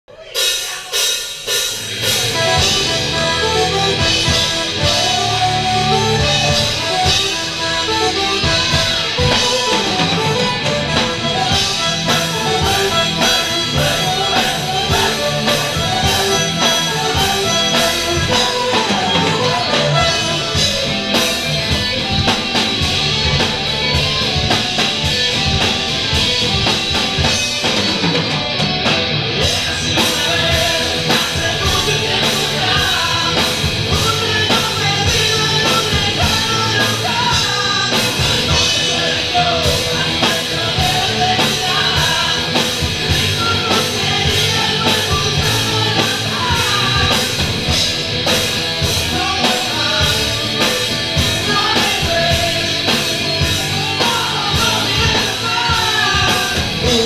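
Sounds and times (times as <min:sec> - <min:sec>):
drum kit: 0:00.1 - 0:57.0
electric guitars: 0:01.4 - 0:57.0
flute melody: 0:02.2 - 0:25.2.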